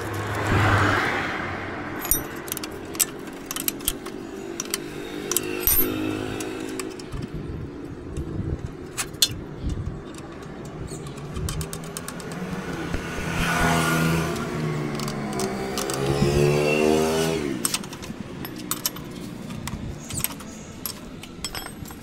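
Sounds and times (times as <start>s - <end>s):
steady engine-like hum: 0.0s - 22.0s
metal tools clinking: 1.9s - 12.4s, 14.3s - 22.0s.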